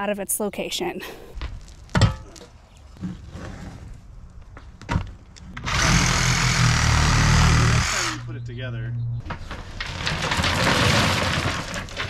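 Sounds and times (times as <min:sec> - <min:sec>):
cordless drill running: 0:05.6 - 0:08.2.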